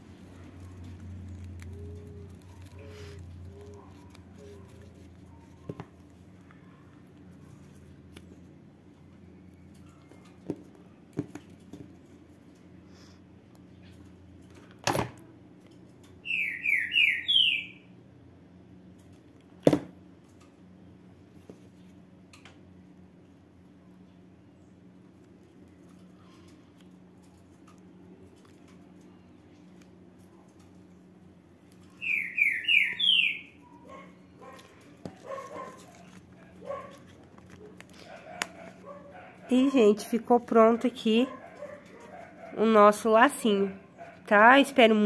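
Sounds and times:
fingers handling hair bow: 0.1s - 8.3s, 34.4s - 40.2s
bird chirping: 16.2s - 17.8s, 31.9s - 33.9s.

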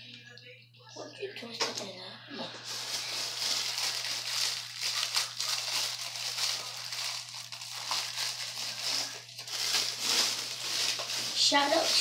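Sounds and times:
plastic packaging crinkling: 2.6s - 12.0s.

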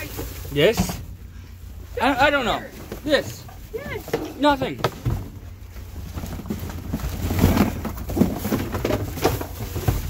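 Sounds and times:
low steady rumble: 0.0s - 10.0s
cardboard boxes knocking and scraping: 2.7s - 10.0s.

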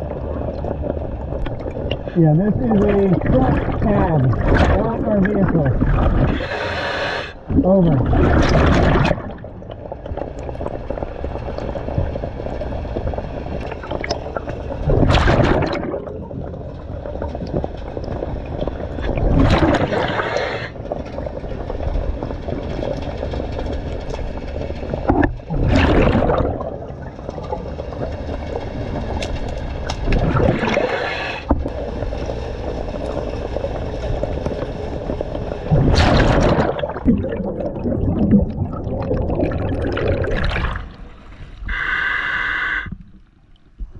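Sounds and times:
exhaled bubbles rushing: 0.0s - 41.8s
steady regulator hiss: 6.3s - 7.4s, 20.0s - 20.8s, 30.7s - 31.9s, 41.6s - 43.0s.

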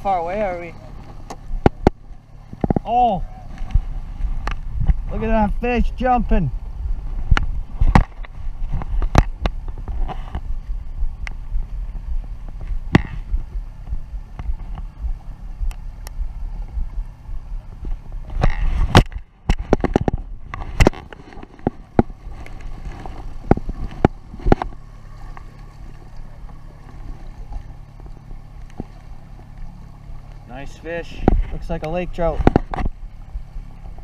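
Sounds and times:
boat motor humming: 0.0s - 34.0s
sharp knocks and clicks: 17.8s - 22.2s, 31.2s - 33.0s.

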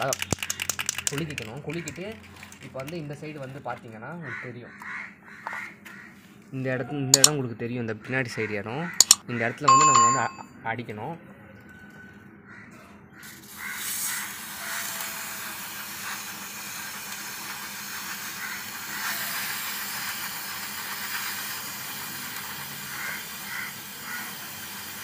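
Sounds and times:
aerosol spray hissing: 13.8s - 25.0s.

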